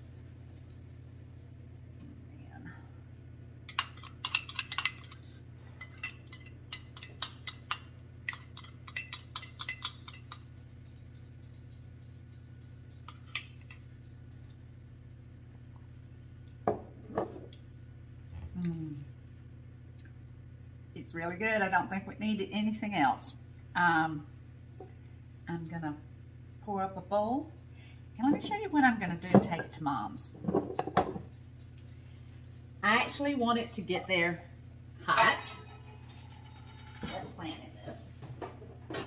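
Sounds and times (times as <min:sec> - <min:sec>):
metal spoon clinking on glass bowl: 0:05.8 - 0:10.4
person humming mm: 0:18.4 - 0:19.2.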